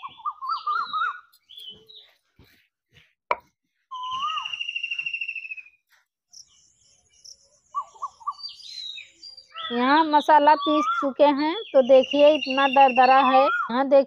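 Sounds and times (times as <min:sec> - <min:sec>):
bird trilling and warbling: 0:00.0 - 0:02.1, 0:03.9 - 0:05.7, 0:07.2 - 0:13.7.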